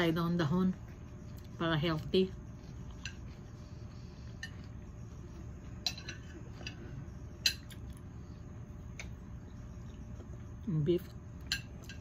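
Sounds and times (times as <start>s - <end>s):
cutlery clinking on a plate: 5.8s - 6.8s.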